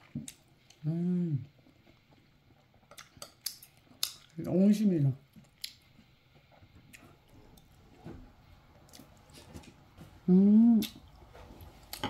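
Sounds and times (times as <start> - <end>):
person humming: 0.8 - 1.5, 10.2 - 11.0.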